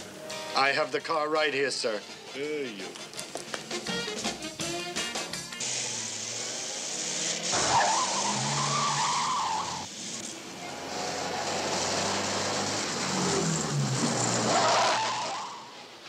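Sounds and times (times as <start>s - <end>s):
tyres squealing: 7.4s - 9.9s, 12.3s - 16.0s.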